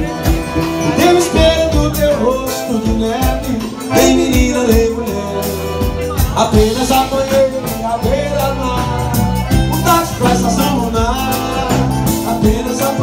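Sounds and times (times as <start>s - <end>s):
accordion melody: 0.0s - 13.0s
bass drum and drum kit beat: 0.0s - 13.0s.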